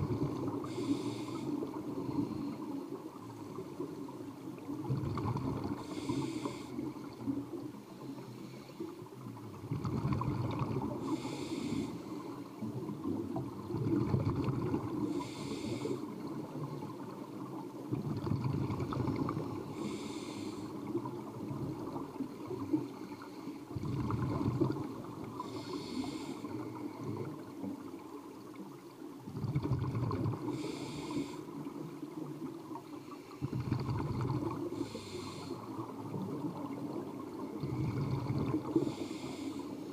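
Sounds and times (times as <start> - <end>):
exhaled air bubbling: 0.0 - 39.9
regulator hissing inhale: 0.5 - 3.6, 5.7 - 7.2, 8.0 - 9.0, 10.9 - 12.6, 15.0 - 16.2, 19.6 - 21.0, 25.3 - 27.2, 30.4 - 31.7, 34.6 - 35.8, 37.7 - 39.9.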